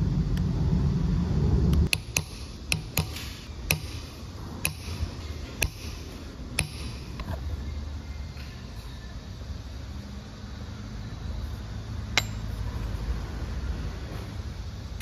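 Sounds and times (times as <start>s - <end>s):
low rumble: 0.0s - 1.9s
metal tool tapping metal disc: 12.2s - 12.5s.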